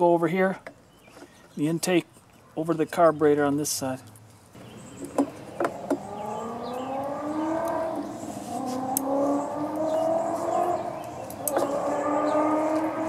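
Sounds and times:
engine hum: 0:04.0 - 0:13.0.

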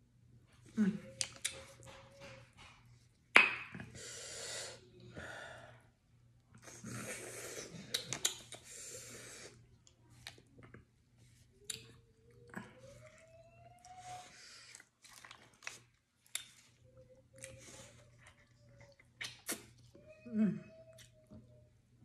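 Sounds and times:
wet sucking and smacking: 0:18.9 - 0:19.9.

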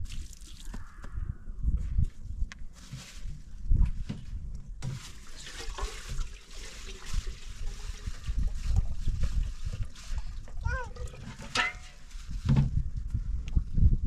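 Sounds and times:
water pouring into a kettle: 0:05.2 - 0:10.6.

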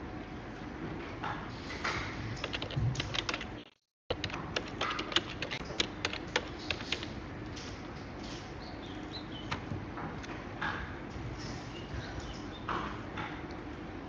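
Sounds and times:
keyboard typing: 0:02.4 - 0:07.2.

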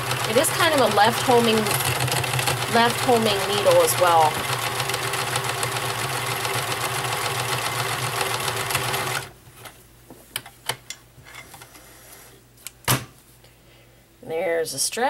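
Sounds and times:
sewing machine running: 0:00.0 - 0:09.3.

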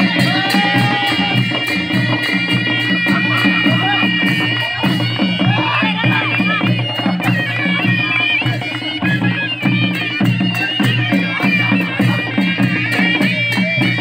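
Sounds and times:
dholaki drums beat: 0:00.0 - 0:14.0
nasal shehnai melody: 0:00.0 - 0:14.0.

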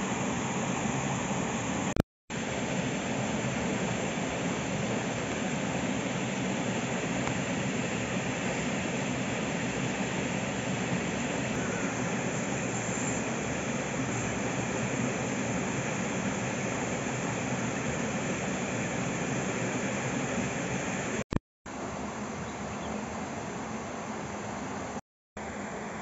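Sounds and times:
steady rushing noise: 0:00.0 - 0:26.0.

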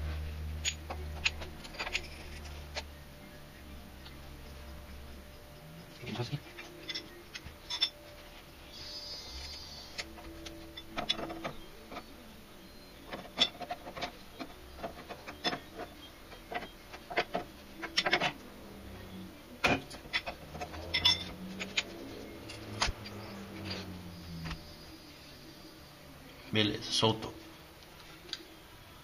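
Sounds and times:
metallic clicks and clanks: 0:00.6 - 0:03.0, 0:05.9 - 0:08.1, 0:09.9 - 0:12.2, 0:13.0 - 0:24.9.

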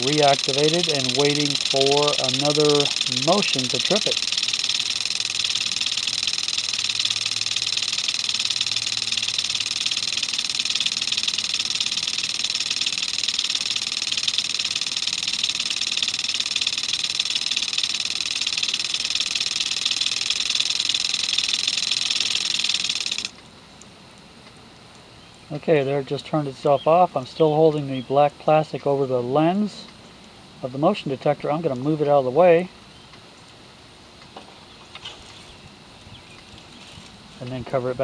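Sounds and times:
sprinkler spraying water: 0:00.0 - 0:23.4.

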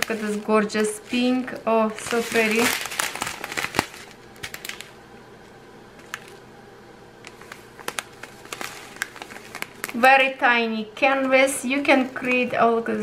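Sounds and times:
plastic bags clicking and tapping: 0:00.0 - 0:04.9, 0:06.0 - 0:06.4, 0:07.2 - 0:10.1.

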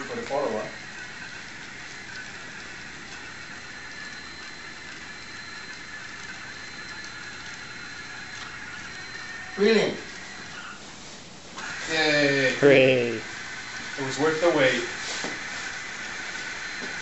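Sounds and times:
robot vacuum motor whir: 0:00.0 - 0:10.8, 0:11.6 - 0:17.0.

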